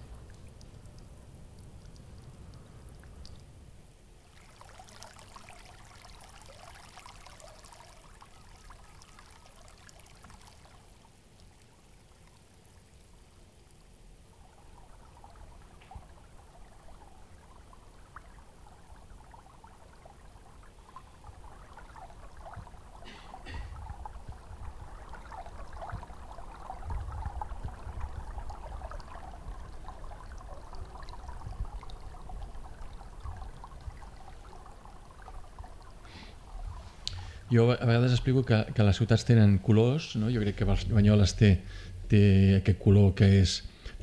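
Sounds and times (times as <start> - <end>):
water pouring and trickling: 0.0 - 43.9
water flowing in a stone channel: 0.0 - 44.0.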